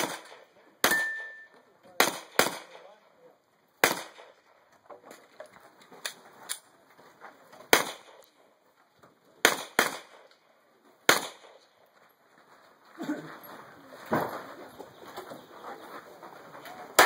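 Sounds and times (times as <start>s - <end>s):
gunshots: 0.0s - 3.0s, 3.8s - 4.6s, 7.7s - 8.4s, 9.4s - 10.4s, 11.0s - 11.7s.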